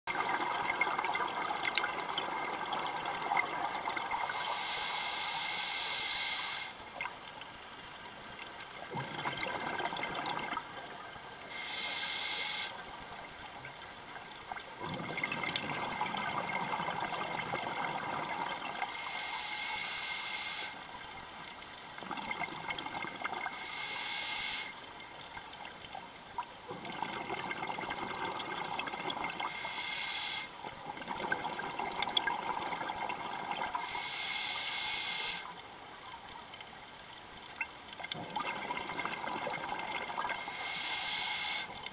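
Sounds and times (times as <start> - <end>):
regulator hiss on inhale: 4.1 - 6.8, 11.4 - 12.8, 18.8 - 20.8, 23.4 - 24.8, 29.4 - 30.7, 33.8 - 35.5, 40.3 - 41.8
exhaled bubbles rumbling: 8.9 - 10.7, 14.8 - 18.7, 38.1 - 40.3.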